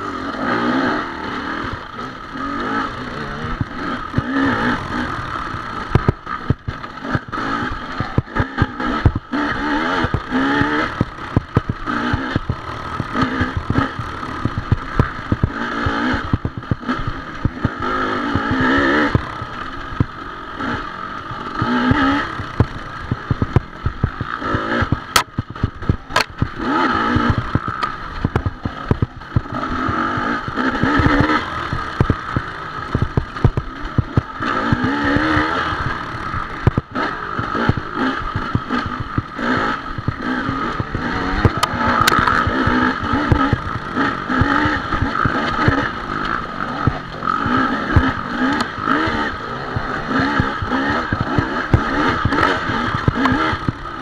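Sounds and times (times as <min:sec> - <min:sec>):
dirt bike engine revving: 0:00.0 - 0:54.0
sharp clicks: 0:21.5 - 0:36.0, 0:36.6 - 0:54.0.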